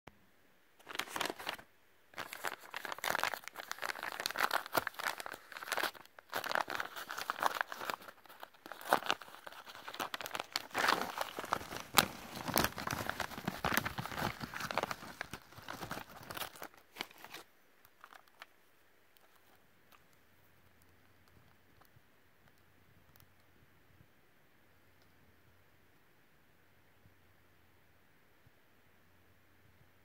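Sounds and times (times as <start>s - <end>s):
paper envelope crinkling and tearing: 0.8s - 18.5s.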